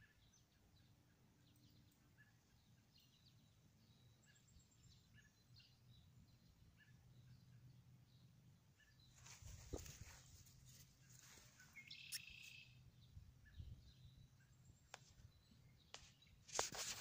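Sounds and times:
rustles and clicks in grass: 0:09.1 - 0:12.6, 0:14.8 - 0:17.0
short high chirp: 0:11.9 - 0:12.7.

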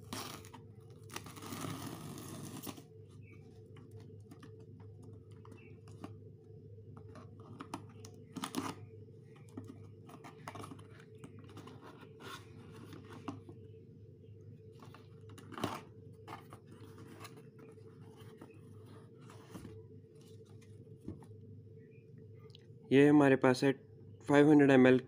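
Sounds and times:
steady low hum: 0:00.0 - 0:25.0
cardboard box cut and ripped: 0:01.1 - 0:02.8.

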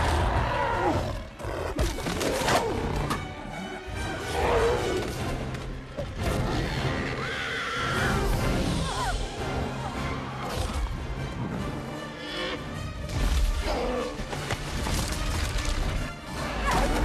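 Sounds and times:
monster growls and roars: 0:00.0 - 0:03.2
dramatic orchestral score: 0:00.0 - 0:17.0.

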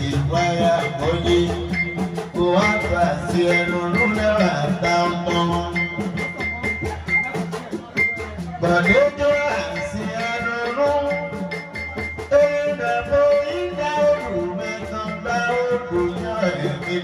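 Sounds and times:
man singing through microphone: 0:00.0 - 0:17.0
steady repeating percussion: 0:00.0 - 0:17.0.

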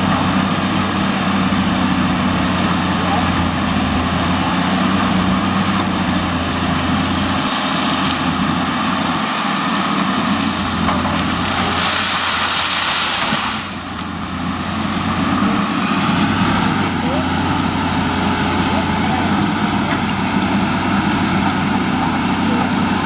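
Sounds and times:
excavator diesel engine running: 0:00.0 - 0:23.0
gravel pouring from bucket: 0:10.4 - 0:13.8.

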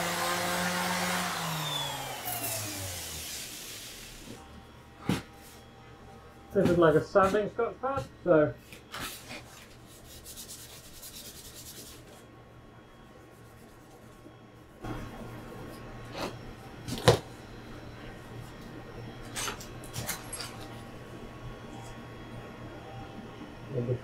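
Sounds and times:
sanding pad scrubbing metal: 0:09.9 - 0:12.1.

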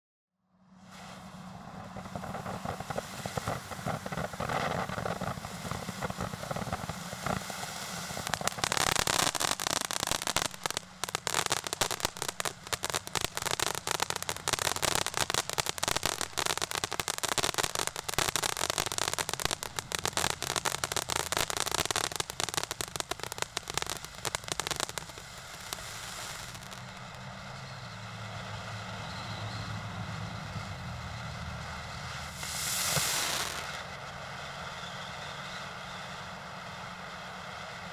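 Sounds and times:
ground fountain firework hissing: 0:00.6 - 0:37.9
firework crackling and popping: 0:00.8 - 0:37.9.

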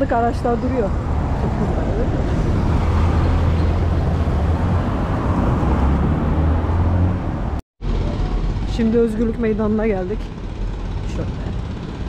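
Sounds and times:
traffic on wet cobblestones: 0:00.0 - 0:12.0
van engine running: 0:06.2 - 0:12.0.

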